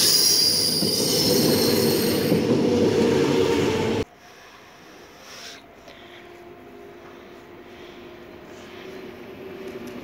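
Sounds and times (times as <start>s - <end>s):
electric train hum and whine: 0.0s - 10.0s.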